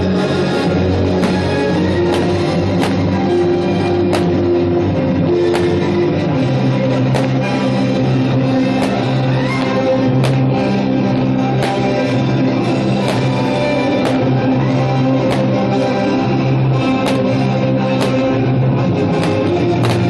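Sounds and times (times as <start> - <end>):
guitar-led rock music: 0.0 - 20.0
sharp hits: 5.5 - 6.0, 13.0 - 14.4.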